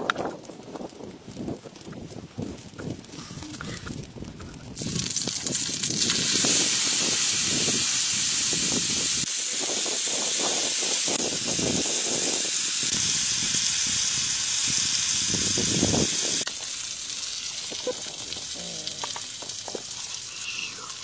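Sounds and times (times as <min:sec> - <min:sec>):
fish frying in hot oil: 0:04.7 - 0:21.0.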